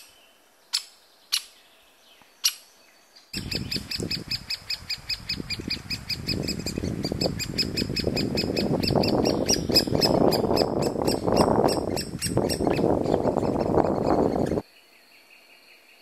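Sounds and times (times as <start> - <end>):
woodpecker nestlings begging calls: 3.4 - 14.6.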